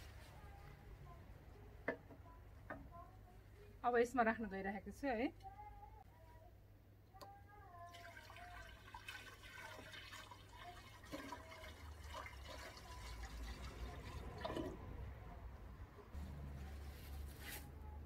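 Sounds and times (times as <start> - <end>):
water pouring into a glass vase: 7.9 - 14.8.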